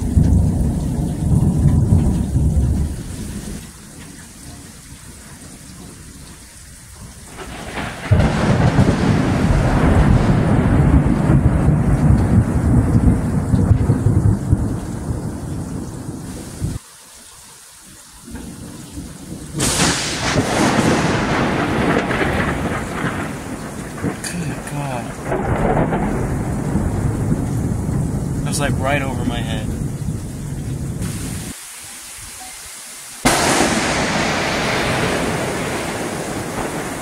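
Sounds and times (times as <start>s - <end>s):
sharp thunderclap: 0.0s - 3.6s, 7.0s - 16.8s, 19.3s - 31.6s, 33.2s - 37.0s
thunder rumbling: 0.0s - 16.8s, 18.2s - 31.6s, 33.2s - 37.0s
rain hiss: 0.0s - 37.0s.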